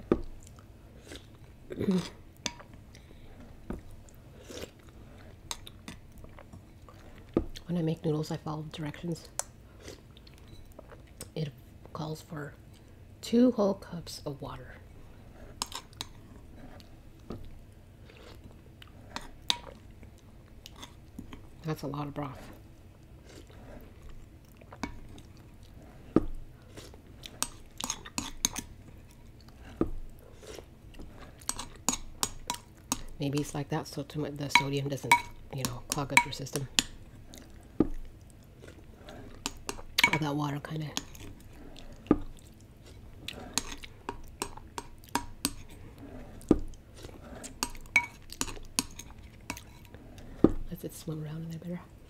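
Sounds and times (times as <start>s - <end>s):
soft chewing: 0.1s - 7.7s, 9.2s - 11.9s, 12.5s - 13.0s, 14.8s - 21.6s, 22.2s - 33.6s, 35.3s - 50.7s
spoon clinking against a bowl: 34.6s - 36.4s, 40.0s - 40.3s, 47.6s - 49.7s.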